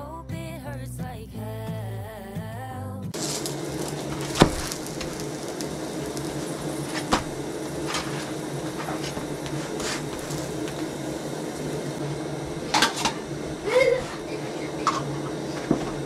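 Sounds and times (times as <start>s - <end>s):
steady low hum: 3.2s - 16.0s.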